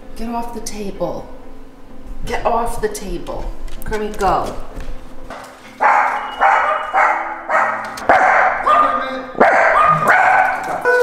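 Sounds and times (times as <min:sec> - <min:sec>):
dog barking: 0:05.8 - 0:11.0.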